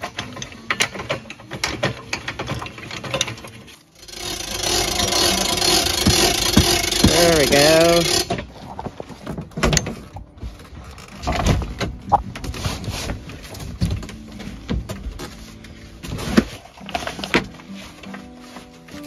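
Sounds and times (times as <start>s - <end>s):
canvas rustling: 8.4s - 19.0s.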